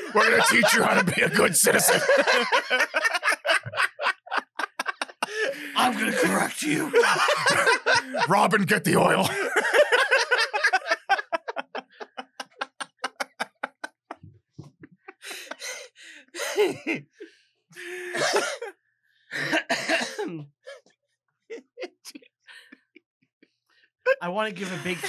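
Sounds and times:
person laughing: 0.0 - 17.2, 17.8 - 18.6, 24.6 - 25.0
person coughing: 0.2 - 2.2, 5.2 - 8.3, 9.2 - 9.6, 16.4 - 17.1, 17.8 - 18.7, 19.4 - 20.5.

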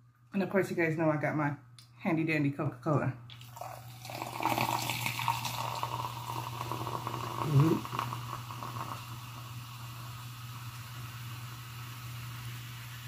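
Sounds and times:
soda fizzing over ice: 3.4 - 13.0
short voice sound: 7.4 - 7.9.

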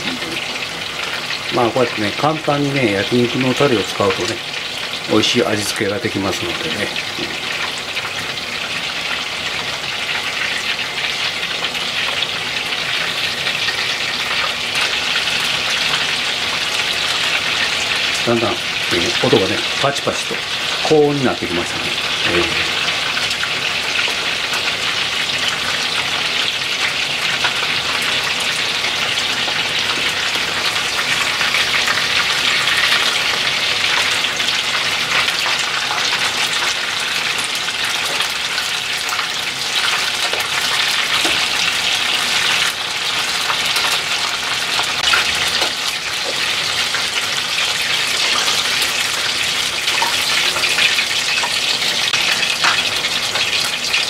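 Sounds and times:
deep-frying sizzle and crackling: 0.0 - 54.0.

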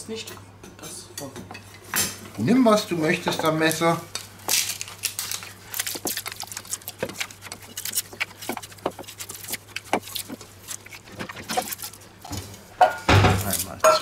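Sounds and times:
hands kneading minced meat: 3.2 - 12.6
onion skin peeling with knife: 3.7 - 12.2, 13.3 - 14.0.

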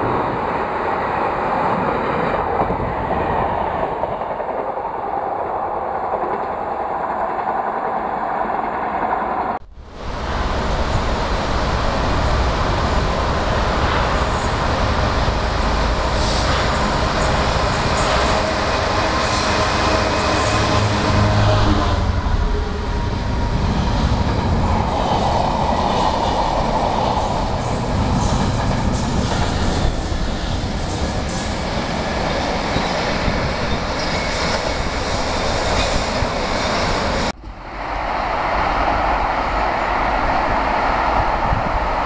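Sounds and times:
wind noise on microphone: 0.0 - 42.0
diesel locomotive rumble: 9.6 - 42.0.

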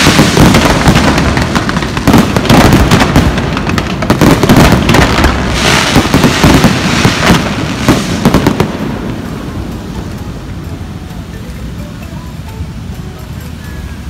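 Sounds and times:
fireworks bangs: 0.0 - 10.3
fireworks crackling hiss: 0.0 - 14.0.

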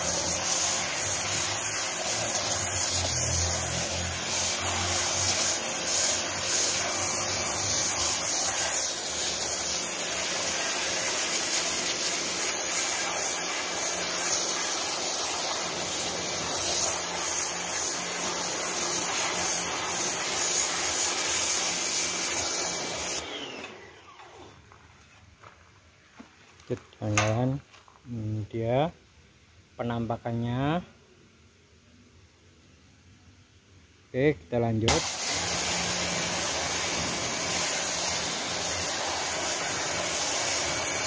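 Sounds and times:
pressure washer water jet hiss: 0.0 - 24.6, 34.9 - 41.0.

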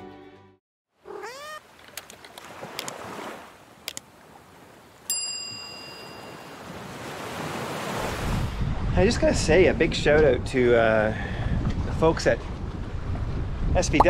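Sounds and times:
ocean waves: 1.0 - 8.6
bell-like ding: 5.1 - 6.6.

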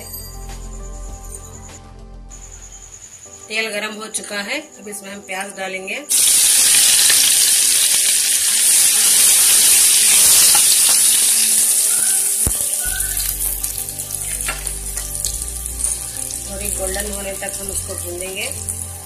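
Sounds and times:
onions sizzling in hot oil: 6.1 - 19.0.

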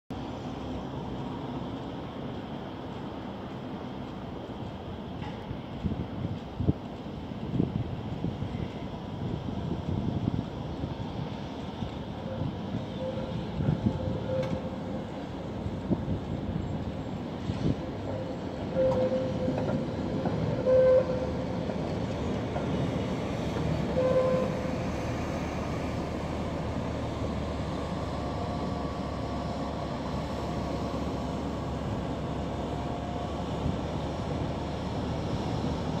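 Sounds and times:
tram running on rails: 0.1 - 36.0
tram wheels squealing: 11.2 - 36.0.

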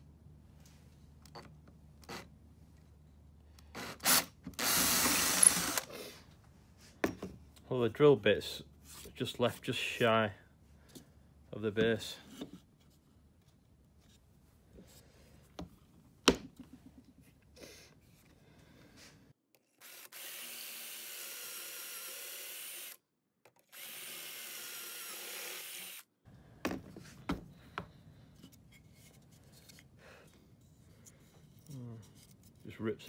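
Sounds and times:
power drill boring into wood: 3.8 - 6.0, 19.8 - 23.0, 23.7 - 26.1.

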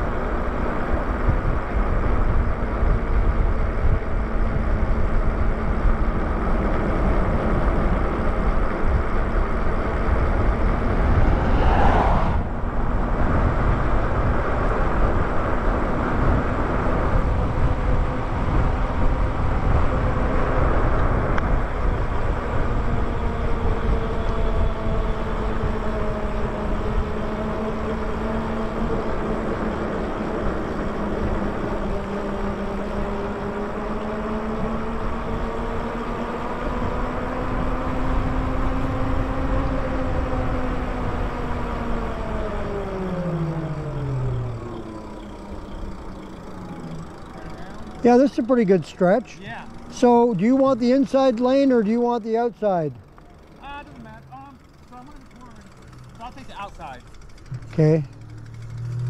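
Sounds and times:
wind buffeting microphone: 0.0 - 52.2
rising whoosh: 10.6 - 13.6.

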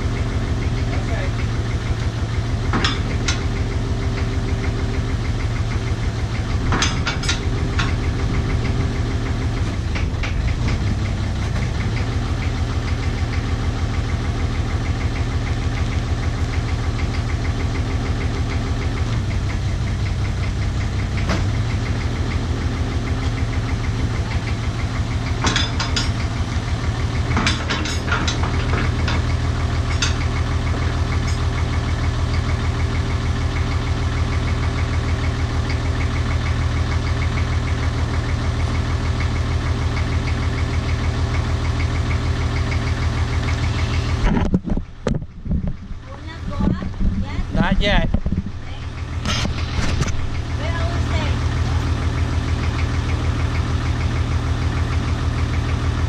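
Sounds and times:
diesel engine chugging: 0.0 - 56.0.

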